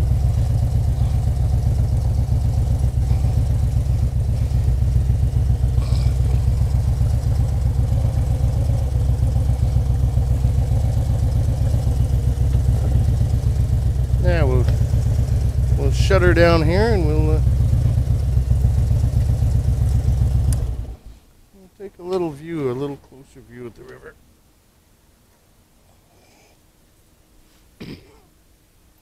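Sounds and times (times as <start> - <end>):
motorcycle engine running at low revs: 0.0 - 21.1.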